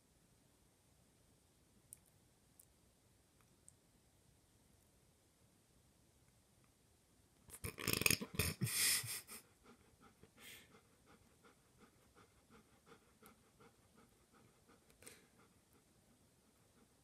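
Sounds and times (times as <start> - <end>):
dog panting: 9.2 - 17.0.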